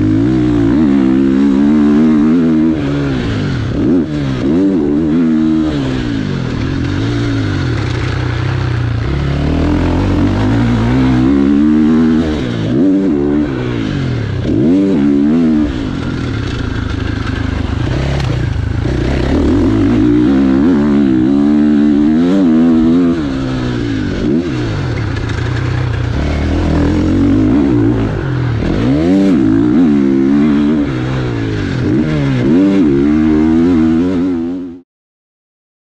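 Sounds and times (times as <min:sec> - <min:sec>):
motocross engine revving: 0:00.0 - 0:34.8.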